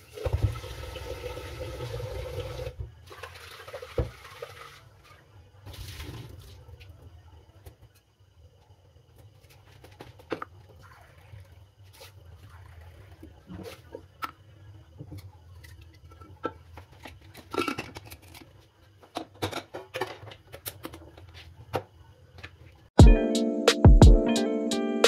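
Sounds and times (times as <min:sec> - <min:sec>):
music: 0:23.0 - 0:25.0.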